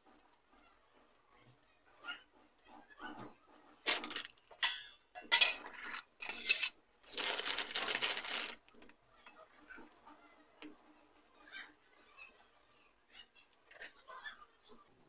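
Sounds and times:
bread packet rustling: 3.9 - 4.4, 5.8 - 8.9.

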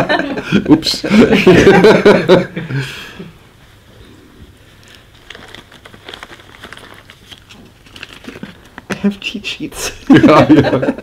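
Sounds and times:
paper sheets rustling: 4.8 - 9.4
person laughing: 10.0 - 11.0.

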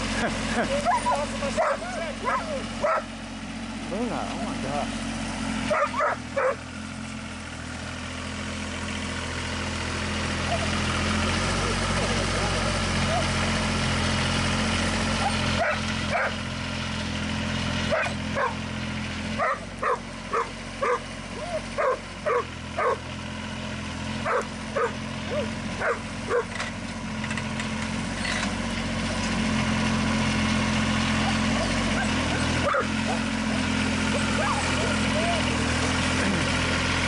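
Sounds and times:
tractor engine idling: 0.0 - 37.0
dog barking in high yips: 0.8 - 3.1, 5.7 - 6.6, 10.5 - 10.7, 13.1 - 13.3, 17.9 - 18.6, 19.4 - 23.0, 24.3 - 26.5, 31.2 - 33.2, 34.4 - 34.8.

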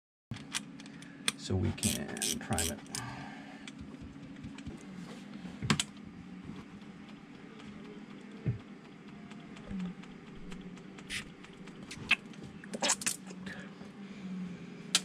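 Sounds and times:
steady low hum: 0.3 - 15.0
hands clicking and scraping fittings: 0.4 - 3.0.

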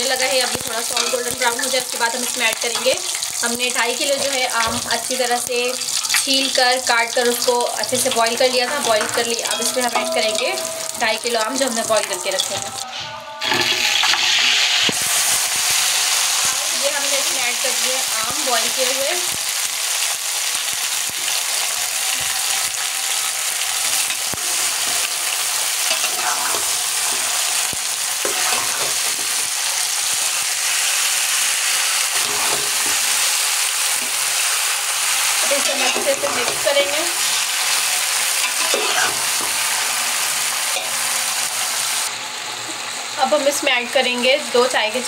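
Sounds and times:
food sizzling in hot oil: 0.0 - 45.0
metal spatula scraping pot: 25.8 - 27.6, 28.2 - 29.3, 32.1 - 33.2, 38.4 - 39.4.

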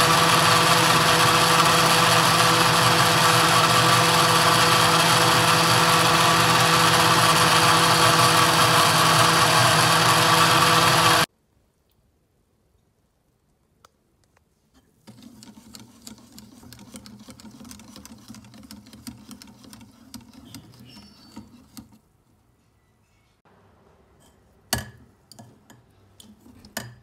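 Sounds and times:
whisk clicking against bowl: 15.1 - 22.0.

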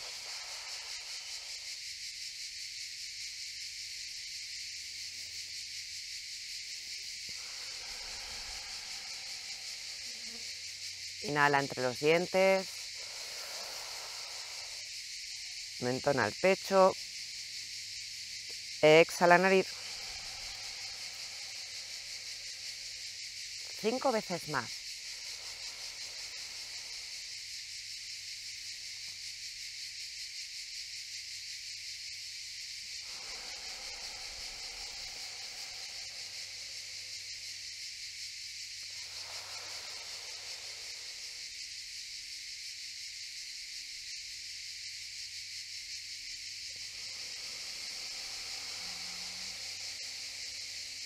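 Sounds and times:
cicadas singing: 0.0 - 51.0
soft breathing through teeth: 7.2 - 10.9, 19.7 - 23.2.

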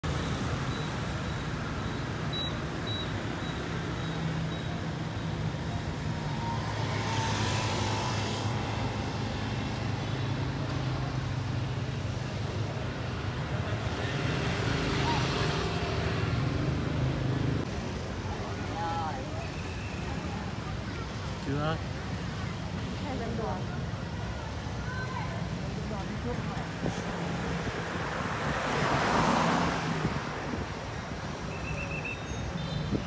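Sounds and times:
vehicles passing by: 0.0 - 33.0.

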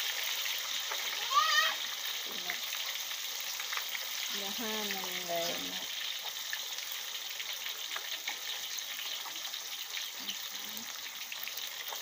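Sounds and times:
fish deep-frying in hot oil: 0.0 - 12.0.

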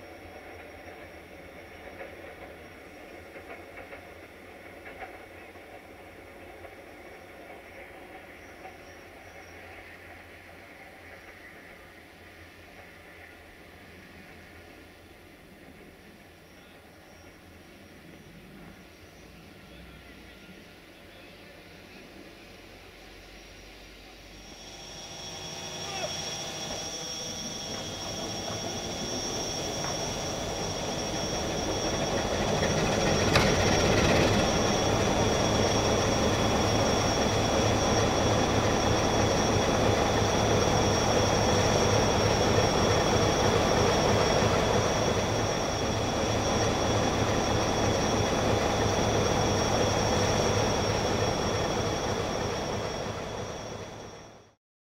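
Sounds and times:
high-pitched whine: 16.4 - 54.6
locomotive engine running: 24.3 - 54.5.

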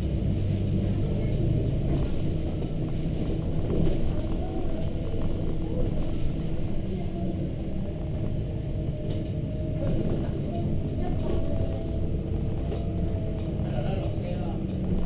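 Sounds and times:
bus diesel engine running: 0.0 - 15.0
road rumble: 0.0 - 15.0.

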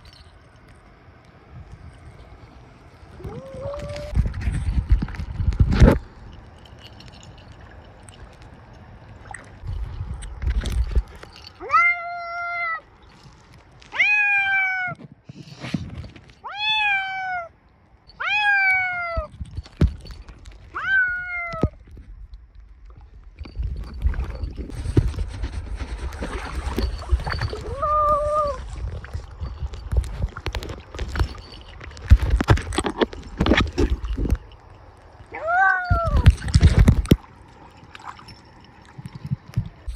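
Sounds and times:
water splashing: 6.6 - 10.0, 36.1 - 39.9
cat meowing: 14.0 - 15.0, 16.4 - 17.5, 20.8 - 21.6, 27.6 - 28.6, 35.3 - 36.2.

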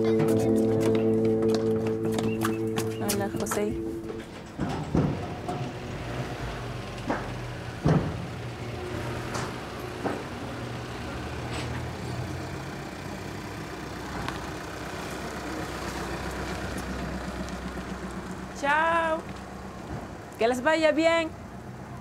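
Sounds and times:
knocks and clatters: 0.0 - 8.5
vehicle engine idling: 0.0 - 22.0.

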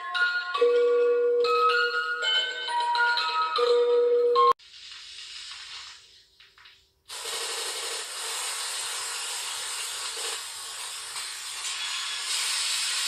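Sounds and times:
loud static hiss: 7.1 - 13.0.

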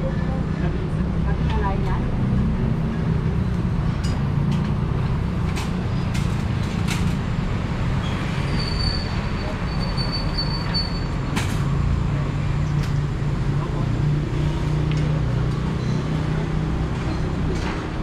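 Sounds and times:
traffic rumble: 0.0 - 18.0
thin high squeal: 8.0 - 11.1.

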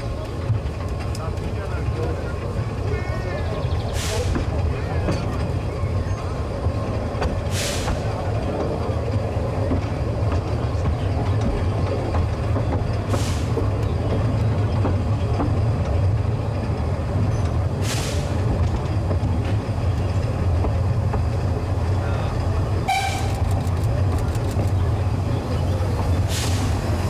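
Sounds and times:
vehicle engine rumbling: 0.0 - 27.0.

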